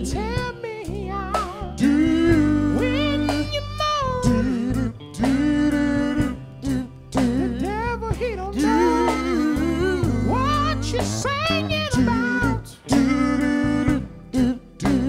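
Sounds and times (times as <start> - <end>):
gospel band playing: 0.0 - 15.0
wordless vocal moaning: 4.5 - 15.0.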